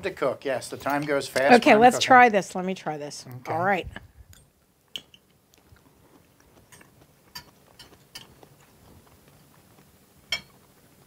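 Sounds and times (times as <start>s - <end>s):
forks clicking on plates: 6.7s - 8.4s.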